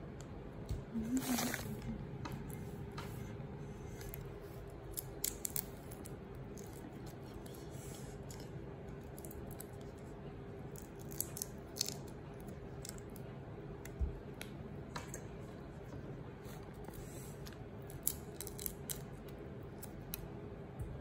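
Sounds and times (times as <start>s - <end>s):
steady low hum: 0.0s - 21.0s
shrimp shells clicking and snapping: 4.8s - 7.4s, 8.3s - 10.0s, 10.7s - 15.2s, 17.8s - 20.3s.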